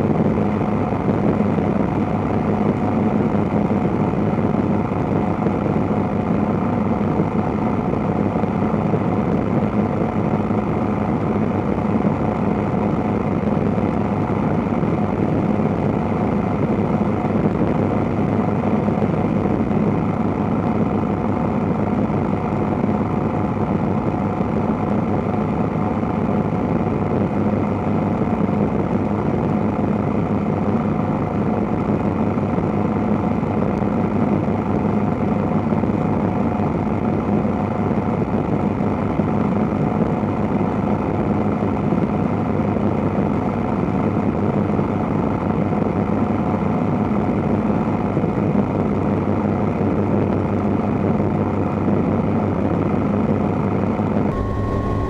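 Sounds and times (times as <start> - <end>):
helicopter engine and rotor drone: 54.3 - 55.0.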